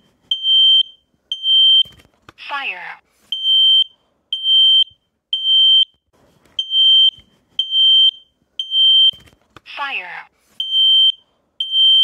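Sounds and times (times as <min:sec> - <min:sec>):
high-pitched alarm beeps: 0:10.6 - 0:12.0.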